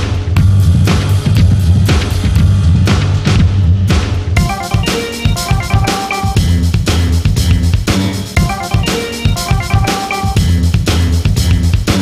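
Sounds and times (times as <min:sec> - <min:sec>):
music with drum beat and bass: 0:00.0 - 0:12.0.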